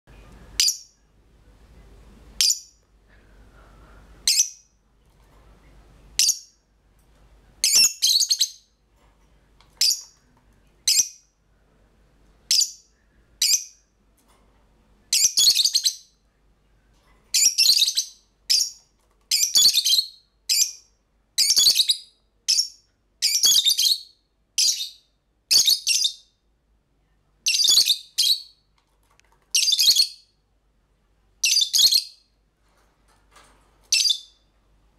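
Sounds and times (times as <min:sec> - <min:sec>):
lovebirds chirping: 0:02.4 - 0:02.8, 0:07.6 - 0:08.8, 0:09.8 - 0:11.3, 0:12.4 - 0:13.8, 0:15.1 - 0:16.2, 0:17.3 - 0:26.4, 0:27.4 - 0:28.7, 0:29.5 - 0:30.4, 0:31.4 - 0:32.4, 0:33.9 - 0:34.5.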